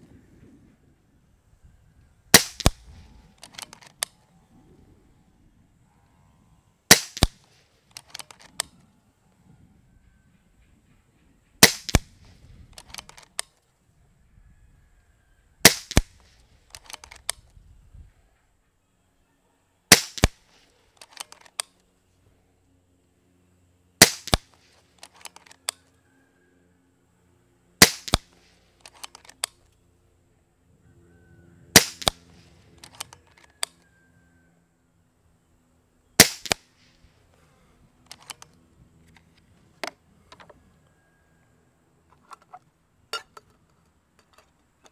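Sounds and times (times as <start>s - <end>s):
air rifle shots: 2.3s - 4.1s, 6.9s - 8.7s, 11.6s - 13.4s, 15.6s - 17.4s, 19.9s - 21.4s, 24.0s - 25.3s, 27.8s - 29.1s, 31.7s - 33.1s, 36.2s - 37.0s
rifle action clicks: 2.3s - 4.2s, 6.9s - 8.8s, 11.6s - 13.6s, 15.6s - 17.5s, 19.9s - 21.9s, 24.0s - 25.8s, 27.8s - 29.8s, 31.8s - 33.8s, 36.2s - 37.0s, 38.1s - 40.5s.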